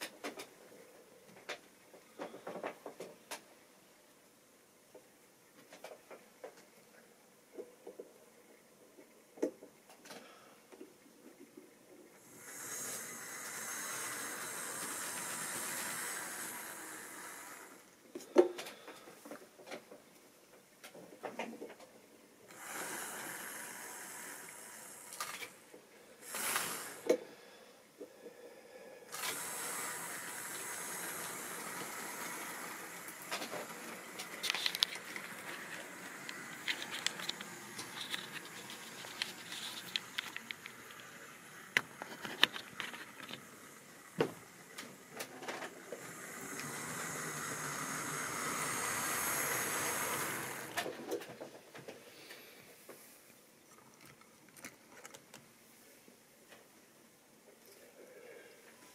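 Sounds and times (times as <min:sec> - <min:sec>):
model trains rushing hiss: 0:12.2 - 0:18.0, 0:22.5 - 0:27.5, 0:28.7 - 0:51.4.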